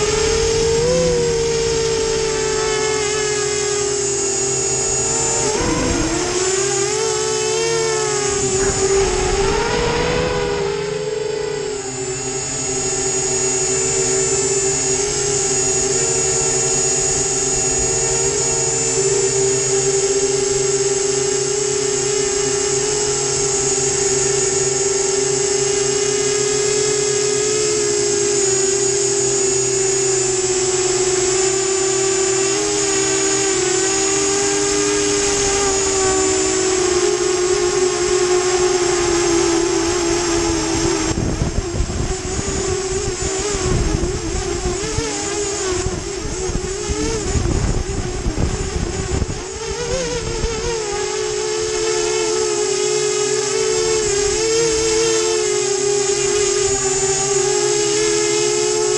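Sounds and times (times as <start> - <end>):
drone propellers whining: 0.0 - 58.9
wind buffeting microphone: 5.2 - 6.6, 8.0 - 12.3, 38.9 - 50.8.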